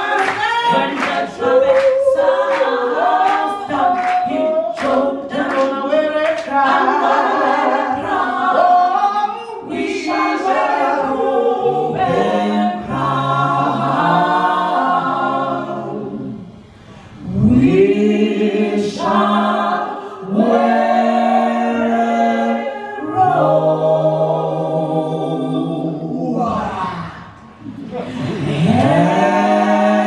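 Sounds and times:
women singing a cappella: 0:00.0 - 0:30.0.

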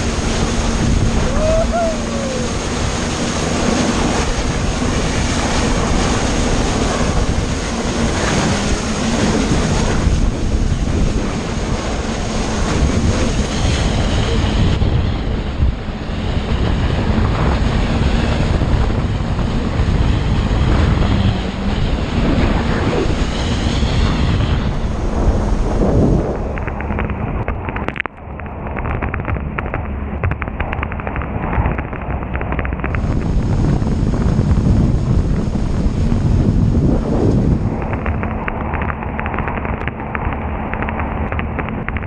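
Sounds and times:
rushing spray: 0:00.0 - 0:14.9
low engine drone: 0:00.0 - 0:42.0
wind buffeting microphone: 0:00.0 - 0:42.0.

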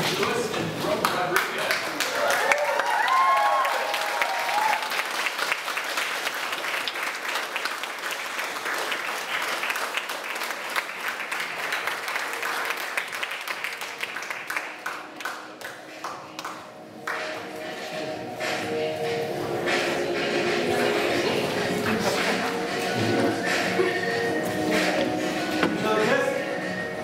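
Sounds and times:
people applauding: 0:00.0 - 0:17.9.

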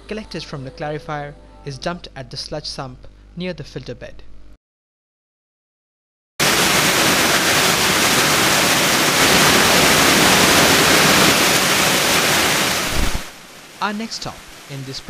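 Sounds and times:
water rushing: 0:06.4 - 0:15.0.

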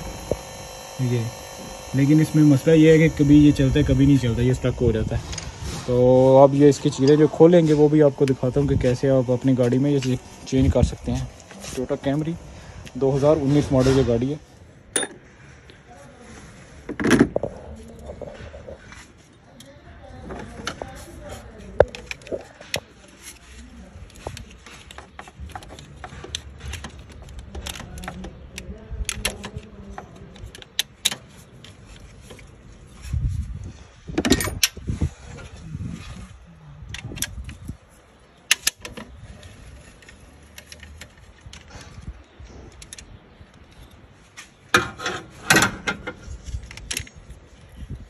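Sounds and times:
tools clattering on engine parts: 0:14.9 - 0:15.4.

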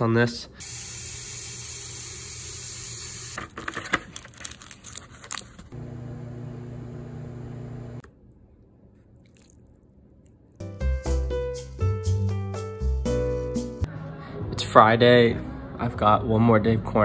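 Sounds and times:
microwave oven humming: 0:05.8 - 0:08.1.

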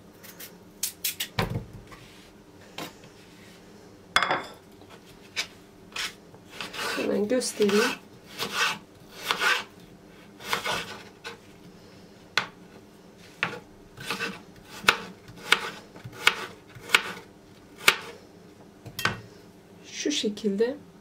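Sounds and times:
knife cutting on wooden board: 0:07.6 - 0:09.7, 0:10.4 - 0:11.4, 0:13.4 - 0:17.2.

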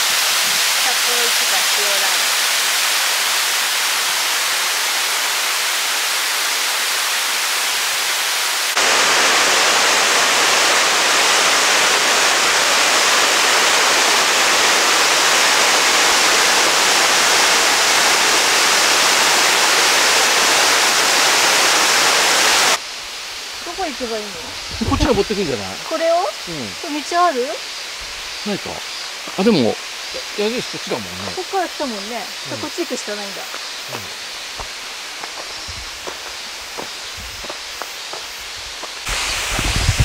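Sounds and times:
waterfall rushing onto rocks: 0:00.0 - 0:40.0.

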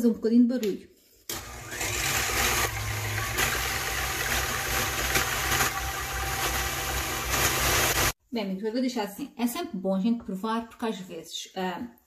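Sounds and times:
stand mixer motor whisking: 0:01.3 - 0:08.2.

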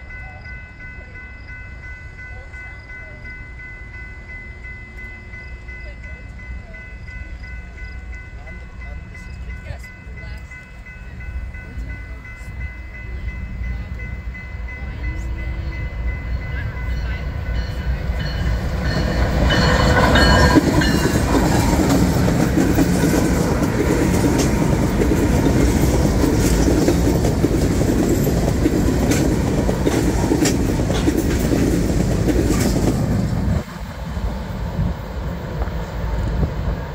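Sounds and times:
crossing bell ringing: 0:00.0 - 0:36.7
diesel locomotive engine rumble: 0:00.0 - 0:36.9
wheels clacking over rail joints: 0:16.4 - 0:33.7.

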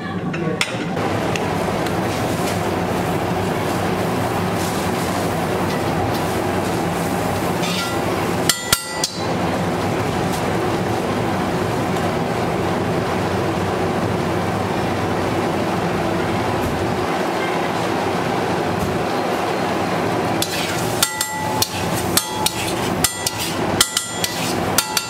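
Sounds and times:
metal spatula clanking: 0:20.4 - 0:25.0.

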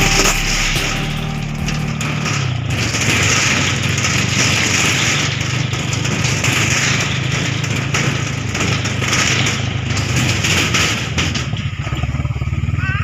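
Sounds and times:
motorcycle engine running: 0:11.4 - 0:13.0.

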